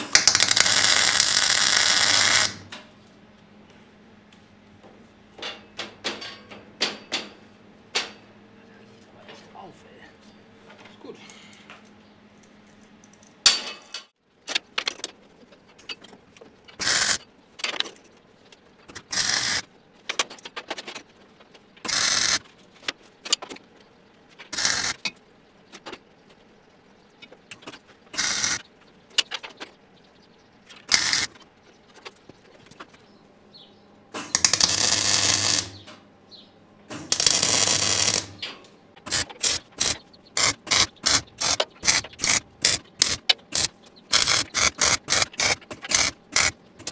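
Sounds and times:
arc welder hissing bursts: 0.0 - 2.6, 28.2 - 28.6, 34.3 - 35.8, 37.0 - 38.4, 39.1 - 46.5.

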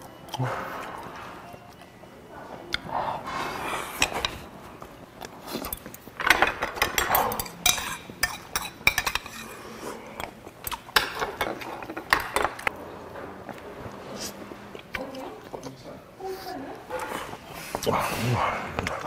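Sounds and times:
chopsticks clinking on dishes: 5.4 - 12.7.

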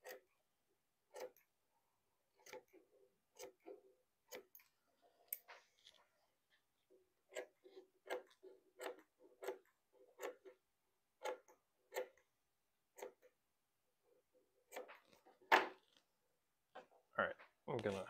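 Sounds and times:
scissors snipping fabric: 0.0 - 0.3, 1.1 - 1.5, 2.3 - 6.0, 7.2 - 10.6, 11.2 - 12.3, 12.9 - 13.3, 14.7 - 16.0.

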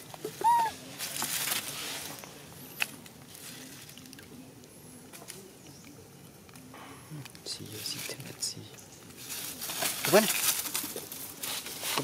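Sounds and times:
dry leaves rustling: 0.0 - 4.5, 7.5 - 12.0.

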